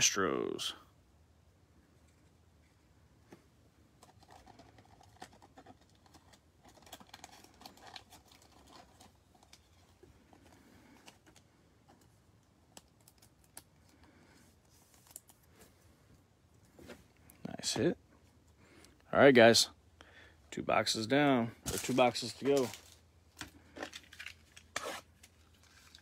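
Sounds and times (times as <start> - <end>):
trading cards clicking and rustling: 21.7 - 26.0.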